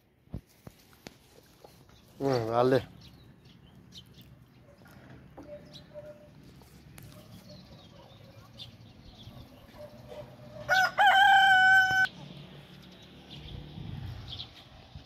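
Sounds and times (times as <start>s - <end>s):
rooster crowing: 10.5s - 12.1s.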